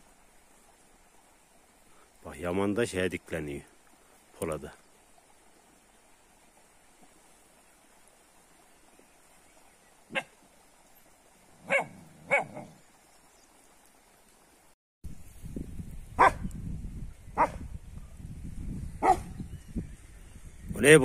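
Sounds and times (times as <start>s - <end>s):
dogs barking: 10.1s - 10.4s, 11.6s - 12.8s, 16.2s - 16.4s, 17.4s - 17.6s, 19.0s - 19.3s.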